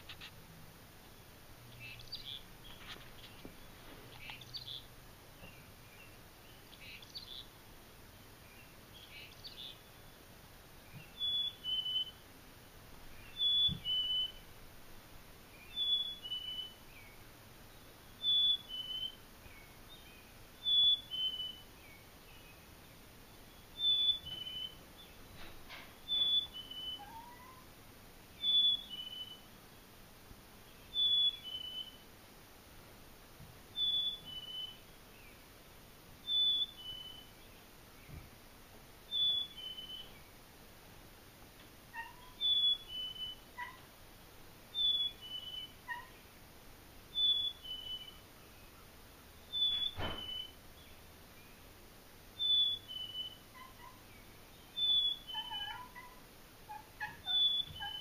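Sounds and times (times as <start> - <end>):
two-note bird whistle from speaker: 49.5 - 50.6.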